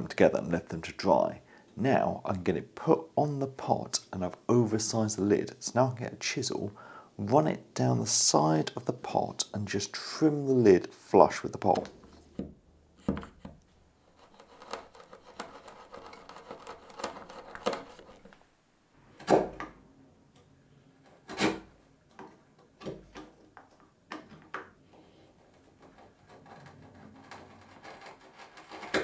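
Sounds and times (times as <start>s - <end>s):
chisel scraping wood: 11.6s - 18.4s, 25.0s - 29.0s.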